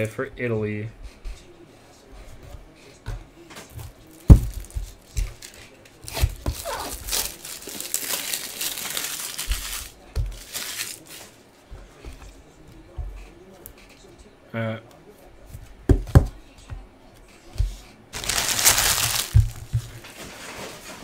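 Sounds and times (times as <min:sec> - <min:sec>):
plastic packaging crinkling: 0:05.4 - 0:11.2, 0:18.2 - 0:19.9.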